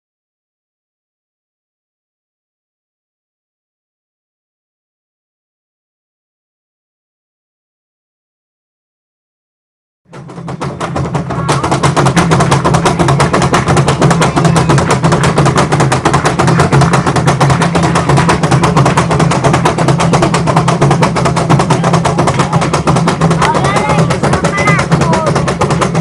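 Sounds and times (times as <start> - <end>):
fast driving drum rhythm: 10.1 - 26.0.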